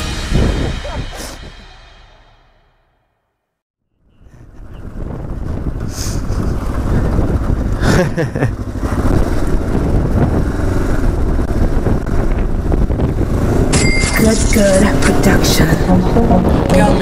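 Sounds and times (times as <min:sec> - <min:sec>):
wind rumbling on microphone: 0:00.0 - 0:01.6, 0:04.0 - 0:13.8
motorcycle engine running: 0:04.1 - 0:13.8.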